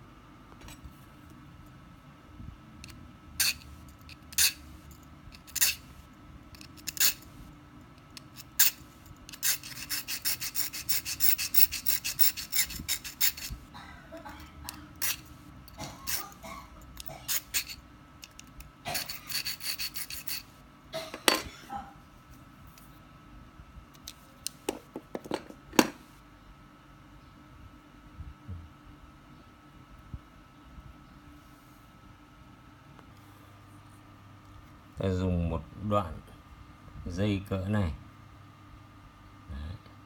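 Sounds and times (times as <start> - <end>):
metal file rasping on wire: 3.4 - 4.7, 5.4 - 5.9, 6.6 - 7.2, 8.2 - 13.6, 15.0 - 15.3, 17.0 - 17.8, 18.9 - 20.5.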